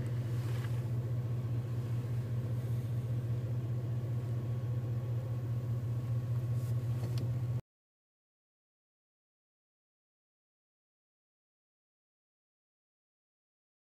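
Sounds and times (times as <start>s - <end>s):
vehicle engine idling: 0.0s - 7.6s.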